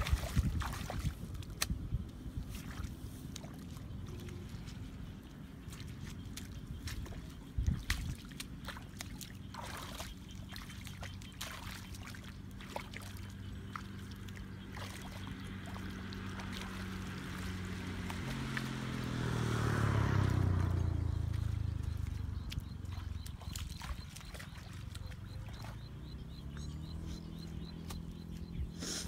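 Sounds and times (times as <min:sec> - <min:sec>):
water splashing and trickling: 0:00.0 - 0:29.0
small engine humming: 0:13.4 - 0:29.0.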